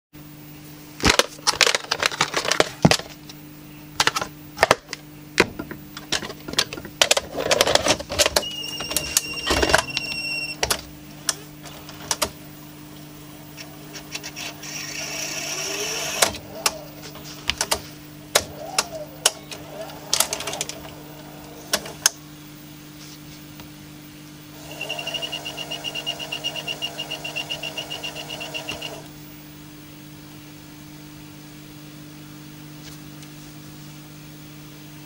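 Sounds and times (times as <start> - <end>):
tape loading mechanism running: 6.0 - 22.2, 24.6 - 29.2
faint rising motor whine: 8.5 - 22.8, 24.5 - 30.5.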